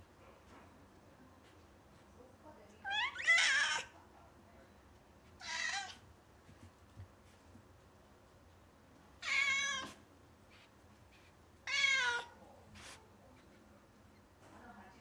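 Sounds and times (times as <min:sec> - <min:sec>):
cat meowing: 0:02.9 - 0:03.9, 0:05.4 - 0:06.0, 0:09.2 - 0:10.0, 0:11.6 - 0:12.3.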